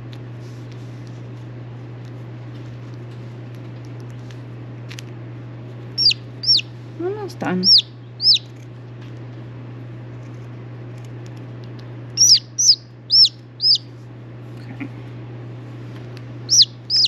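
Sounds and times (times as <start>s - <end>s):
steady low hum: 0.0s - 17.0s
chick peeping: 6.0s - 6.7s, 7.6s - 8.5s, 12.2s - 13.9s, 16.5s - 17.0s.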